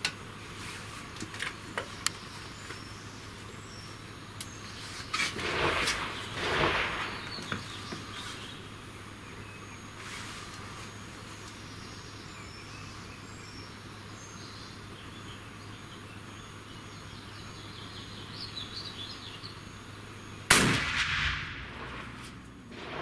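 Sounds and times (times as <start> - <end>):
rifle shot ringing indoors: 20.5 - 23.0.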